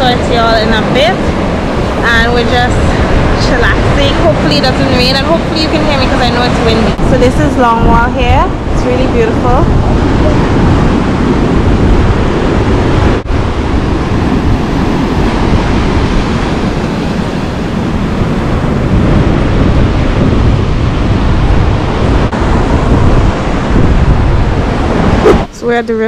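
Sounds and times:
surf breaking on shore: 0.0 - 25.5
wind blowing on microphone: 0.0 - 26.0.

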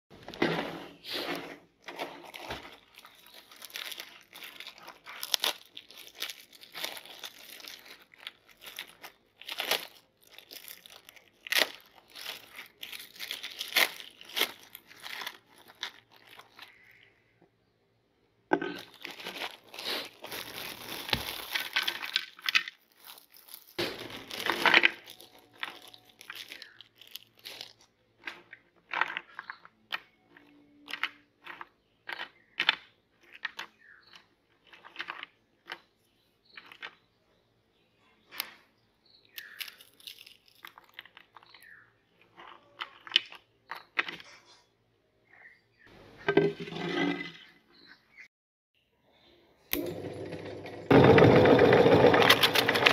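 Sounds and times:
plastic wrapping crinkling and tearing: 1.8 - 17.1, 18.7 - 29.6, 39.4 - 41.7.

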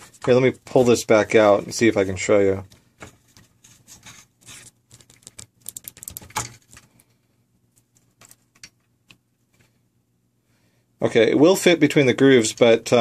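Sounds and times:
plastic and metal clicks and scrapes: 3.9 - 6.9.

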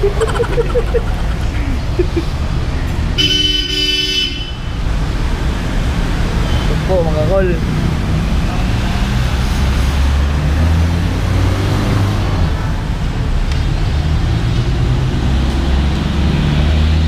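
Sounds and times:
traffic rumble: 0.0 - 17.0.

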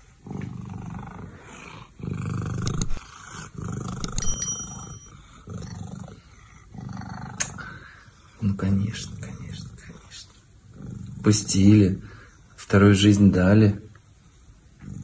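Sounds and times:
cat purring loudly: 0.3 - 4.0.

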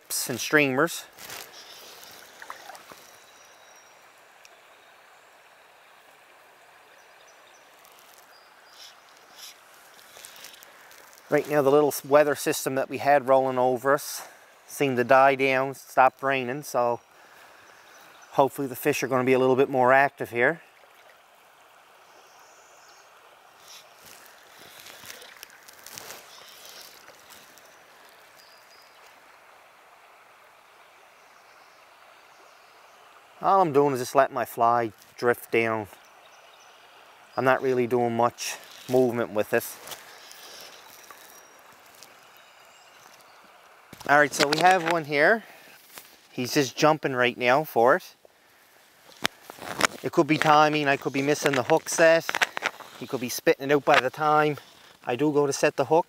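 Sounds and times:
river water flowing: 0.0 - 56.0
splashing in water: 1.1 - 3.2, 23.5 - 28.4.

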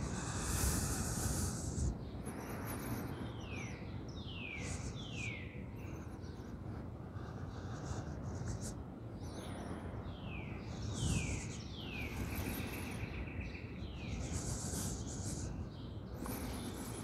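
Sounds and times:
high hiss: 0.0 - 2.0, 14.1 - 17.0
songbird calling: 0.0 - 17.0.

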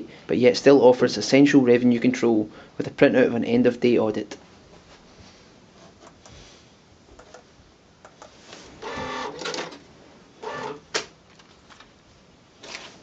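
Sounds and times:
receipt printer printing: 8.8 - 9.8, 10.4 - 10.8.

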